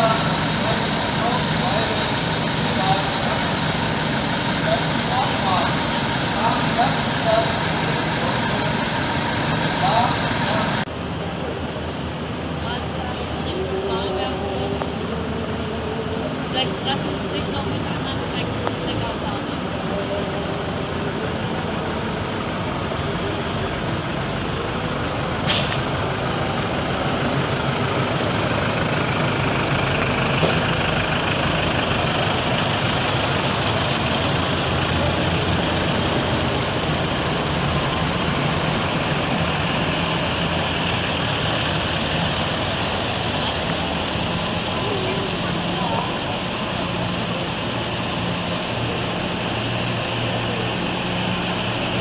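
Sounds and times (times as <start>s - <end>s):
tractor engines driving past: 0.0s - 52.0s.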